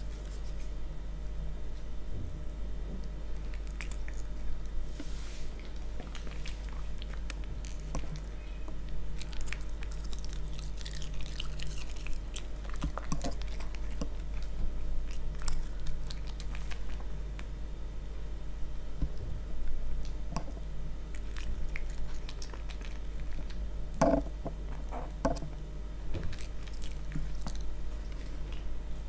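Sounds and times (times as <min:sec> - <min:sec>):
dog chewing and crunching: 0:03.0 - 0:04.8, 0:05.5 - 0:17.6, 0:19.1 - 0:25.5, 0:26.1 - 0:28.8.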